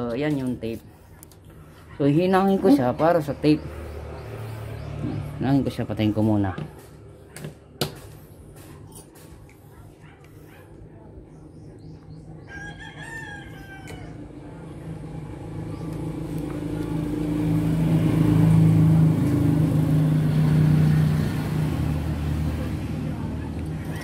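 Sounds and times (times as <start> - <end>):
rooster crowing: 12.4 - 14.4
low engine drone: 14.1 - 24.0.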